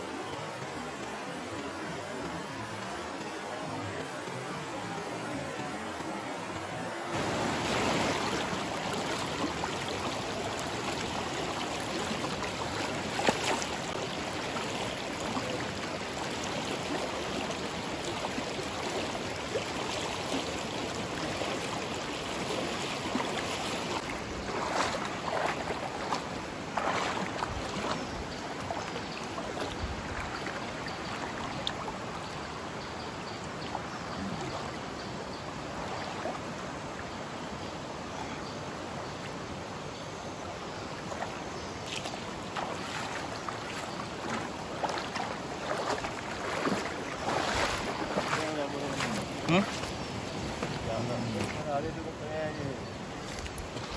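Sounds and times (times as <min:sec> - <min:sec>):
river water rushing over rocks: 0:00.0 - 0:53.9
water splashing: 0:05.4 - 0:32.3, 0:41.0 - 0:53.9.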